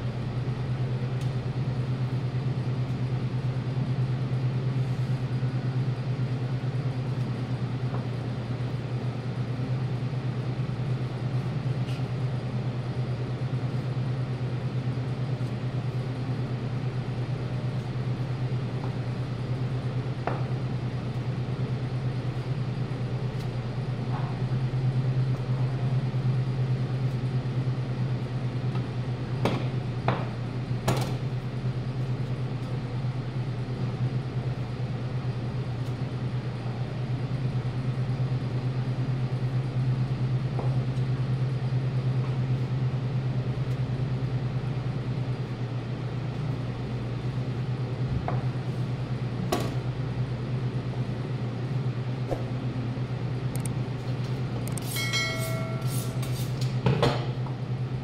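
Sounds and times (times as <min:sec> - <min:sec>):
low machine hum: 0:00.0 - 0:58.0.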